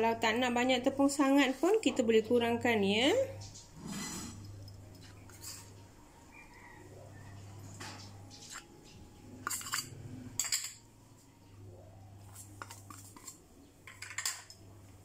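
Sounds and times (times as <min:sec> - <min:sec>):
spoon clinking against bowls: 0:07.7 - 0:10.9, 0:12.3 - 0:14.7.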